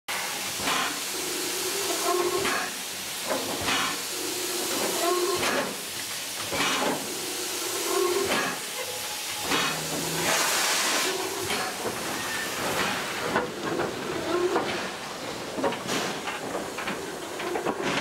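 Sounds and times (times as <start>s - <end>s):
steady steam hiss: 0.1s - 18.0s
steam locomotive chuffing: 0.1s - 18.0s.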